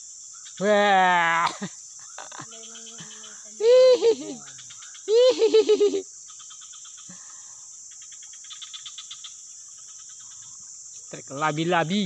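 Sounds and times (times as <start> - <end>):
faint rapid chirping: 0.0 - 12.0
high drone of insects: 0.0 - 12.0
loud wavering call: 3.6 - 4.5, 5.1 - 6.0.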